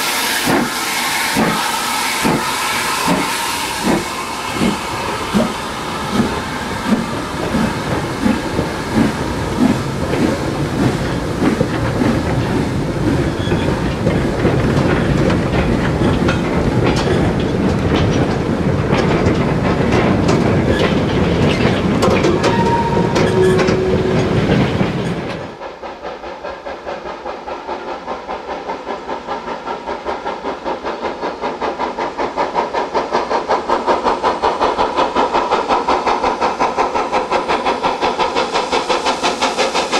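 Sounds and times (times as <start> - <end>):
steam locomotive exhaust beats: 0.0 - 39.9
wagons clattering over rail joints: 5.4 - 25.6
wheel squeal: 13.2 - 14.3, 22.1 - 25.4.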